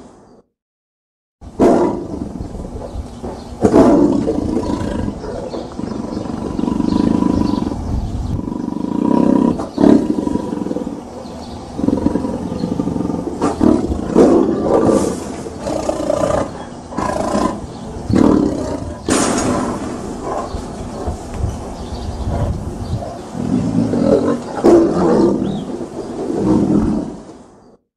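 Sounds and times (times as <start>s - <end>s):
tiger growling: 1.6s - 27.3s.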